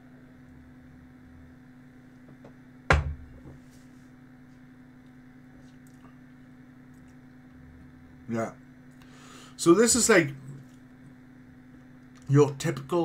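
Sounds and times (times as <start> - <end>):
steady low hum: 0.0 - 13.0
glass knocking on desk: 2.9 - 3.5.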